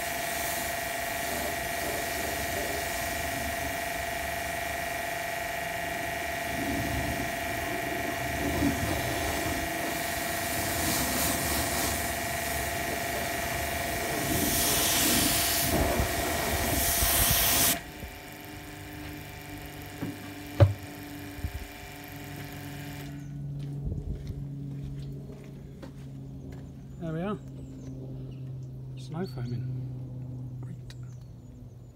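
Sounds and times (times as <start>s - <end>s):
water jet hissing: 0.0s - 18.4s
pressure washer motor whine: 0.0s - 28.6s.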